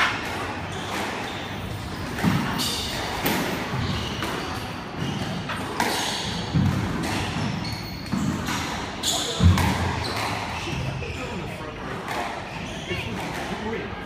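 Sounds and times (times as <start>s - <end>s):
squash ball smacking rackets and walls: 0.0s - 11.0s, 11.8s - 13.8s
shoes squeaking on wooden floor: 0.5s - 6.6s, 7.2s - 11.4s.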